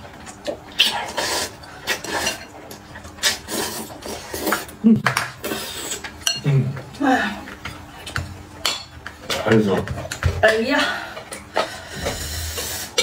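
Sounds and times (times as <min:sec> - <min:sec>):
person slurping noodles: 0:00.8 - 0:02.4, 0:03.2 - 0:04.8.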